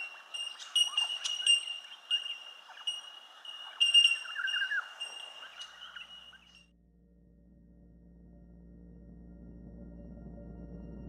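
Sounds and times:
birds ringing notes: 0.0s - 6.6s
quick bird chirps: 0.0s - 6.6s.

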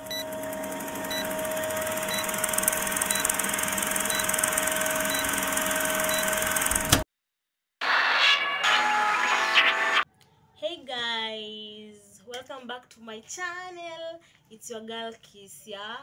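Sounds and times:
film projector whirr and clatter: 0.0s - 7.0s.

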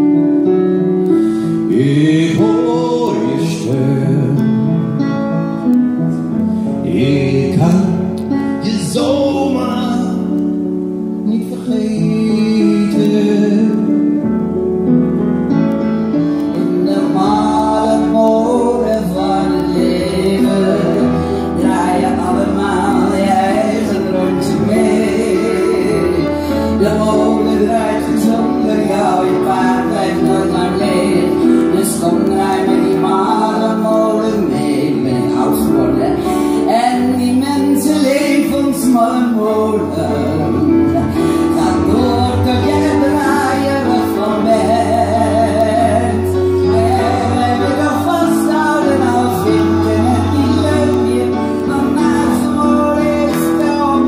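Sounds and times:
person singing: 0.0s - 14.6s, 15.7s - 54.0s
piano accompaniment: 0.0s - 54.0s.

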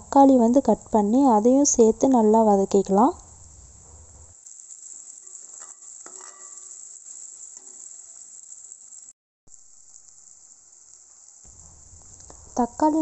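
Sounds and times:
steady high hiss: 0.0s - 13.0s
vegetables sizzling in oil: 0.0s - 13.0s
metal spoon scraping pot: 5.2s - 6.8s.

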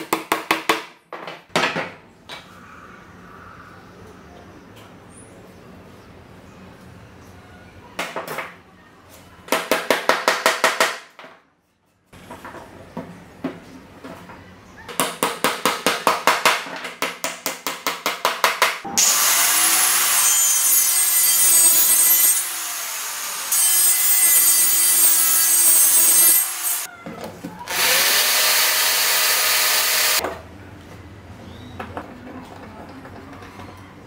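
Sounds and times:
circular saw cutting wood: 18.9s - 26.9s, 27.7s - 30.2s.

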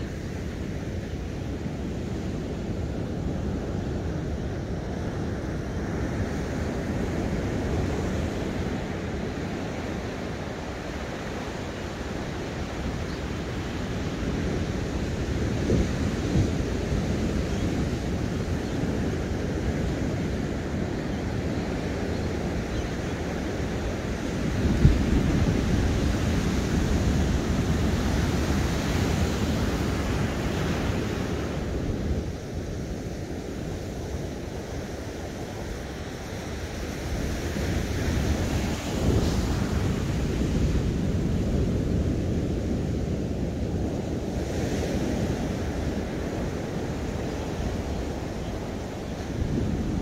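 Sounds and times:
wind buffeting the microphone: 0.0s - 50.0s
ocean surf breaking: 23.4s - 50.0s.

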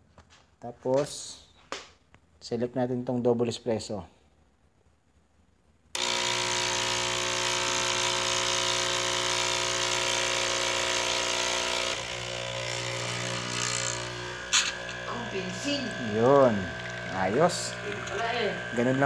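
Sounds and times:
coffee machine pump humming: 6.0s - 19.0s.

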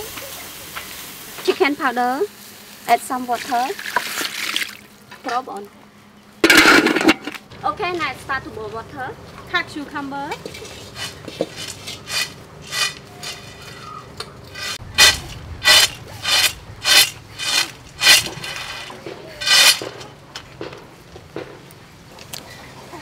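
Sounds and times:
peanuts rasping on a metal plate: 10.3s - 20.2s.

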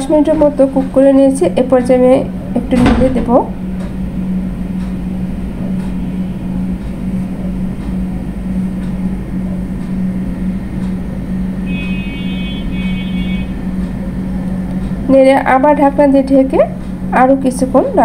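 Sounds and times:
low hum and rumble: 0.0s - 18.0s.

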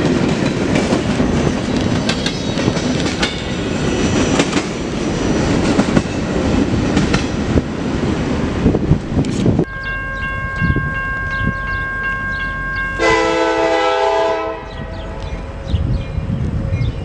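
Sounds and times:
high two-note tone: 9.7s - 14.0s
train air horn blast: 13.0s - 15.2s.

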